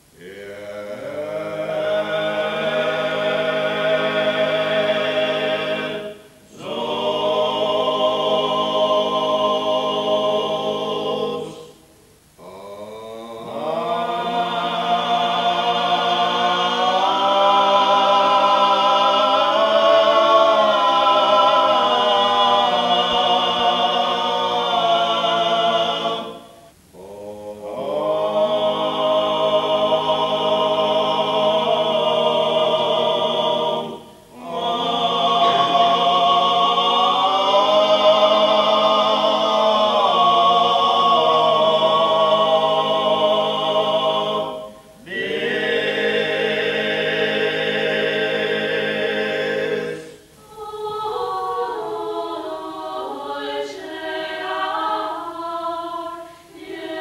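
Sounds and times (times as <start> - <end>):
men singing in harmony: 27.0 - 50.1.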